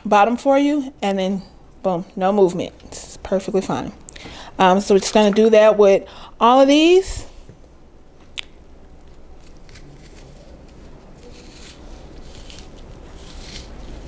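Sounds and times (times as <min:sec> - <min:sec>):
knife cutting pear: 0:09.1 - 0:14.0.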